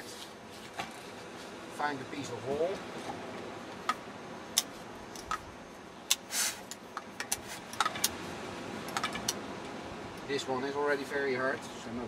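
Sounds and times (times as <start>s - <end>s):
air hissing: 6.1s - 6.8s.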